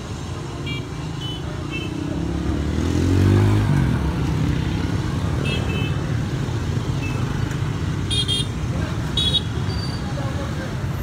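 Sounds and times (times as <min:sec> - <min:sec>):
vehicle engine passing by: 0:02.1 - 0:05.1.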